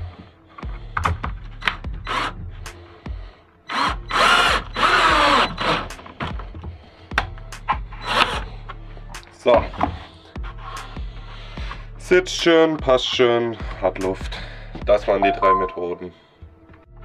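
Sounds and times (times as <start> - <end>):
drill driving screws: 2.1 - 2.4, 3.7 - 5.9, 8.0 - 8.4.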